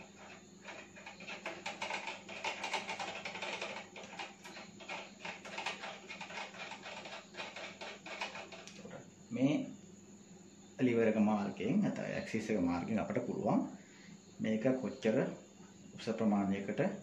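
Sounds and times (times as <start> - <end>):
small metal clicks and rattles: 0.0 - 9.0.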